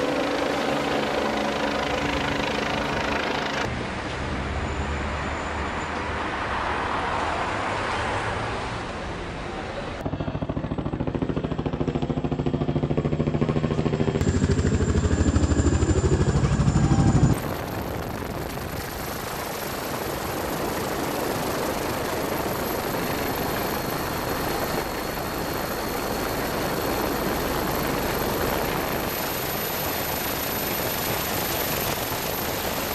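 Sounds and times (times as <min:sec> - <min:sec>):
helicopter engine and rotor: 0:00.0 - 0:03.7, 0:10.0 - 0:32.9
low fast-pulsing throb: 0:10.4 - 0:29.2.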